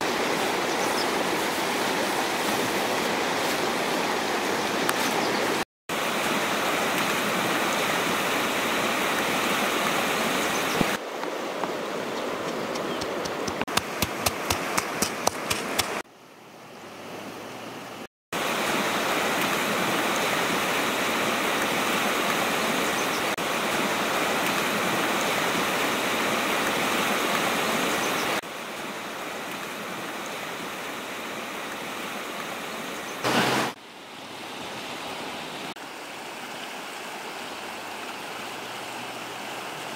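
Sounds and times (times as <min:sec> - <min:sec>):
fast-flowing river rushing: 0:00.0 - 0:16.0, 0:18.4 - 0:39.9
sharp taps: 0:12.5 - 0:16.0.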